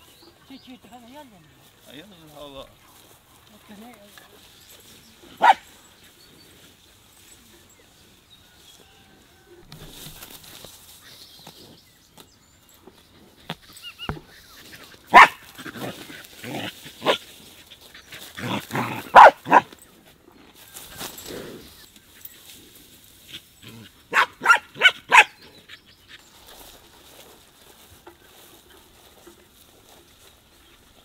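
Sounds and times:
dog barking: 5.4s - 5.7s, 15.1s - 15.9s, 18.4s - 19.7s, 24.1s - 25.4s.

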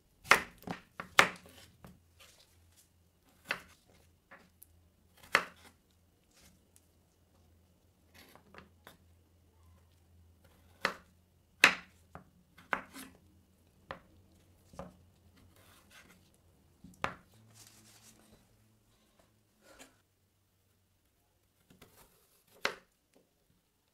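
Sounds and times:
knife chopping on wooden board: 0.2s - 1.6s, 3.4s - 3.7s, 5.2s - 5.7s, 10.5s - 12.0s, 12.6s - 13.2s.

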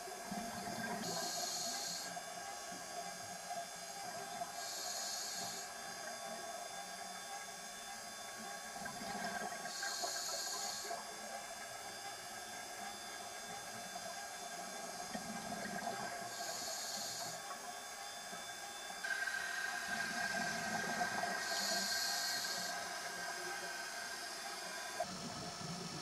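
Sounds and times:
underwater water and bubbles: 0.0s - 26.0s
regulator breaths hissing: 4.6s - 5.6s, 16.3s - 17.4s, 21.4s - 22.8s.

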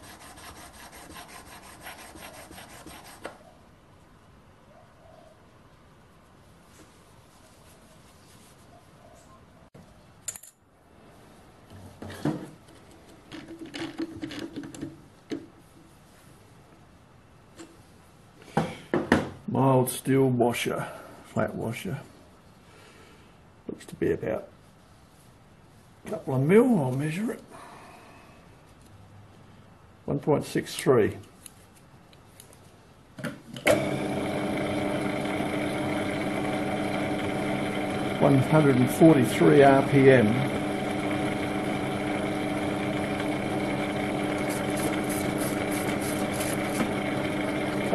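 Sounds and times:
knock: 18.6s - 19.4s
lathe motor whining: 33.7s - 47.9s.

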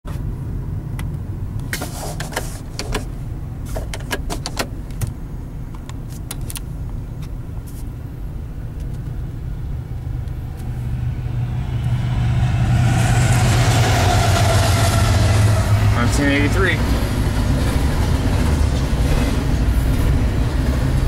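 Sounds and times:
car interior rumble: 0.1s - 21.0s
sharp clicks and rattles: 3.7s - 7.4s.

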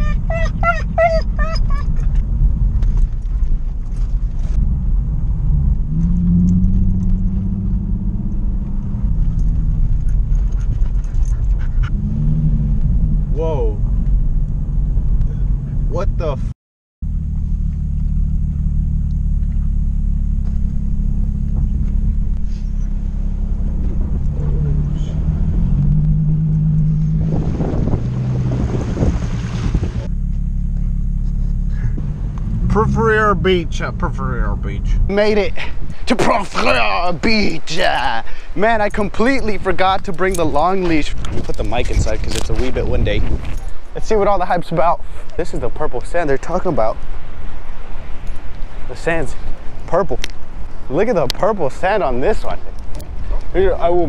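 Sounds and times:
car engine running: 0.0s - 16.4s, 17.0s - 54.0s
road rumble: 0.0s - 54.0s
wind buffeting microphone: 25.1s - 30.1s, 38.8s - 44.0s.

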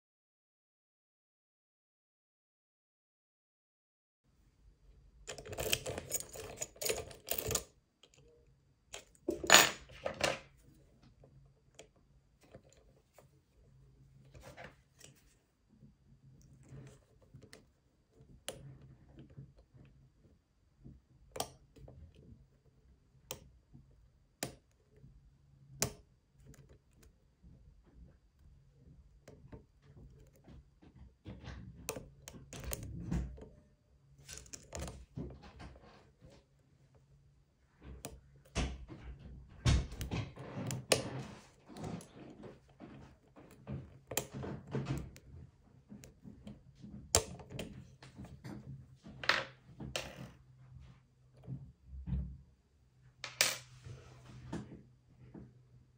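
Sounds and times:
lock pick clicking and scraping: 5.2s - 10.3s, 31.3s - 33.6s, 34.2s - 36.2s, 37.9s - 48.7s.

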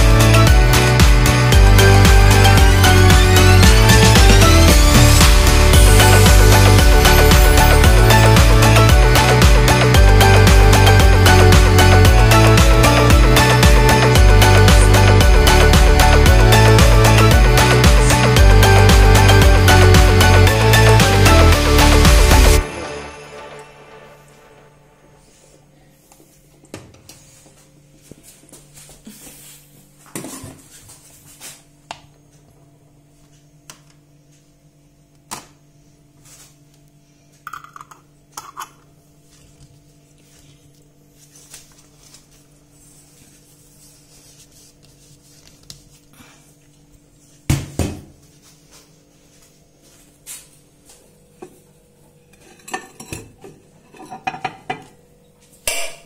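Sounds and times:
kitchenware clinking and knocking: 52.4s - 54.9s.

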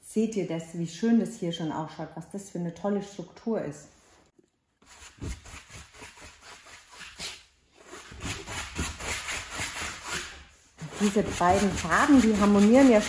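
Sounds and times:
brush scrubbing on canvas: 4.8s - 13.0s.

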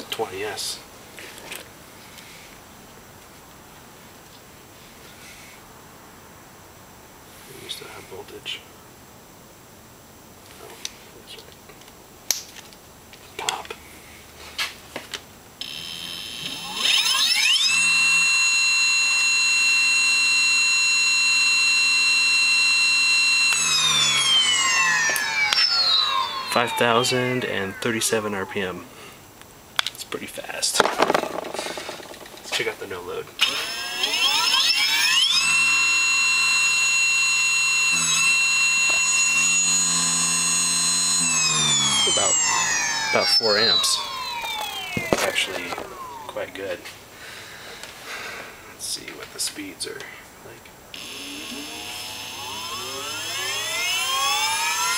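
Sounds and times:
electric motor high whine: 15.6s - 29.1s, 33.4s - 46.6s, 50.9s - 54.9s
clicks: 23.4s - 28.6s, 30.8s - 46.4s.

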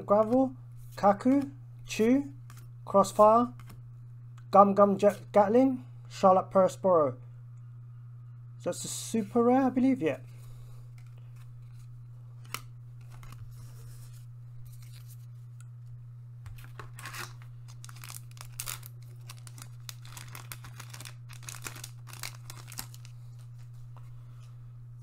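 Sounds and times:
low hum: 0.0s - 25.0s
cards scraping: 10.9s - 15.3s, 16.5s - 23.7s
foil pack crinkling rips: 16.6s - 23.6s.

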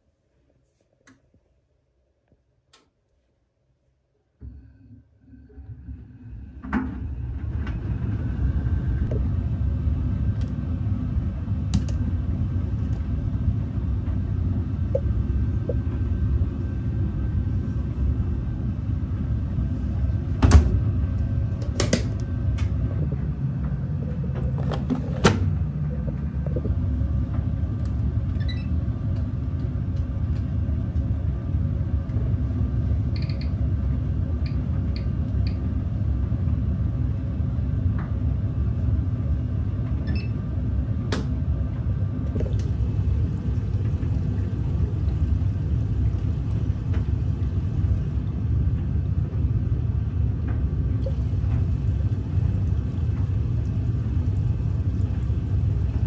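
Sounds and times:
washing machine drum rumbling: 20.1s - 32.4s, 39.7s - 56.0s.

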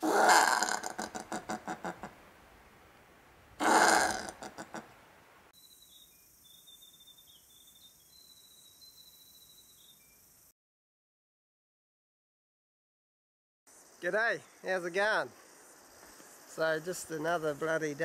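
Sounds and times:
possum rasping calls: 0.0s - 2.1s, 3.6s - 4.9s
faint bird chirping: 4.8s - 10.5s.

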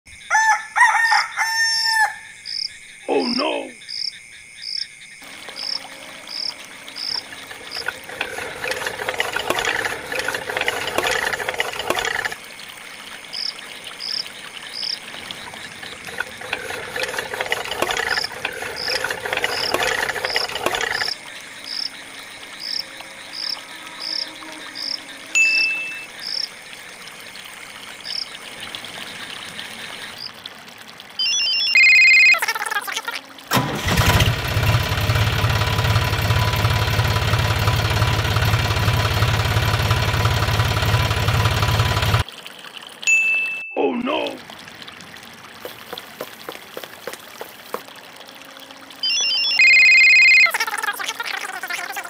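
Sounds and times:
insects chirping: 0.1s - 34.6s
rooster crowing: 0.2s - 2.4s.

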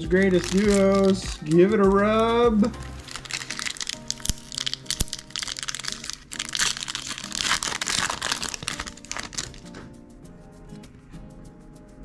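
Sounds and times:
foil wrapper tearing and crinkling: 0.3s - 1.6s, 3.0s - 9.9s
sharp snap of wrapper: 3.1s - 9.9s.

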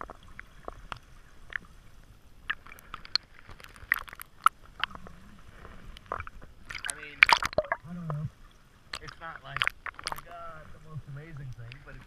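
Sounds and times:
faint underwater hiss: 0.0s - 12.0s
irregular clicks and small pops: 2.4s - 5.1s, 5.9s - 8.2s, 8.9s - 10.4s.

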